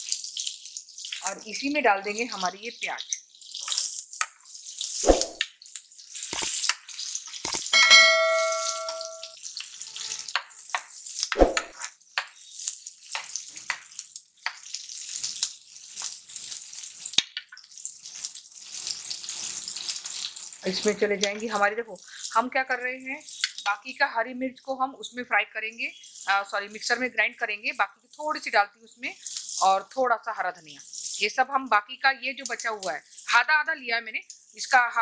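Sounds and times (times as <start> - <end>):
onions sizzling in oil: 0.0 - 24.1, 25.8 - 27.4, 28.0 - 30.0, 30.6 - 31.8, 32.4 - 33.5
ringing ding: 7.7 - 9.4.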